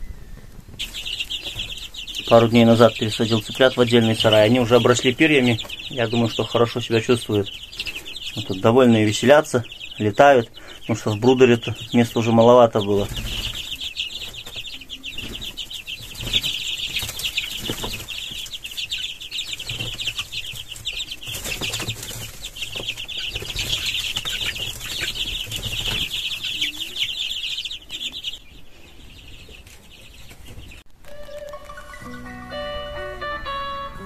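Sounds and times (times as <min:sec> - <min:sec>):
chicks peeping: 0:00.0 - 0:34.0
wings flapping: 0:00.4 - 0:08.6, 0:10.6 - 0:28.3.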